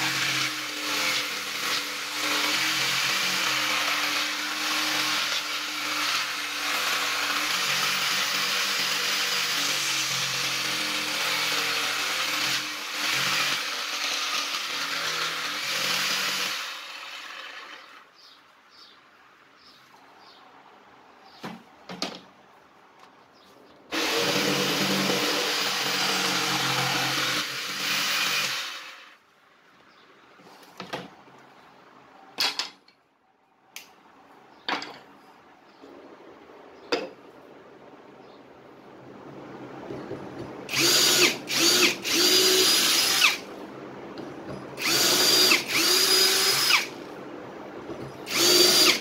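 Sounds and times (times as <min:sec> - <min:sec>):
electric jigsaw cutting wood: 0:00.0 - 0:18.0, 0:23.9 - 0:29.2, 0:40.7 - 0:43.5, 0:44.8 - 0:47.0, 0:48.2 - 0:49.0.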